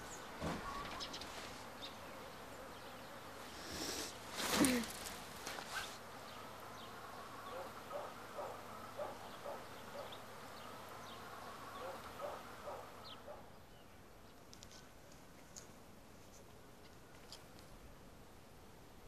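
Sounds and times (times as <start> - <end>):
steady hiss: 3.4 - 7.4
distant animal calling: 7.4 - 10.2, 11.7 - 13.5.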